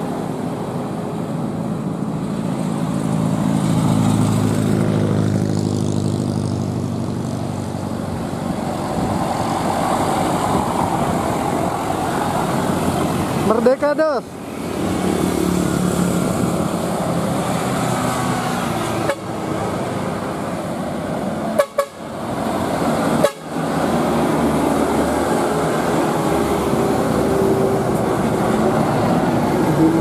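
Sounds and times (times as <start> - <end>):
truck and bus engines running: 0.0 - 30.0
motorcycle engine: 3.1 - 8.4
vehicle horn honking: 21.6 - 22.0, 23.2 - 23.5.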